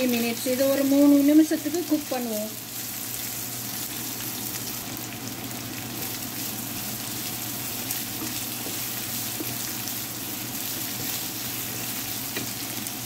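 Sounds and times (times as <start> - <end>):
vegetables sizzling in a frying pan: 0.0 - 13.0
wooden spatula stirring: 6.8 - 13.0.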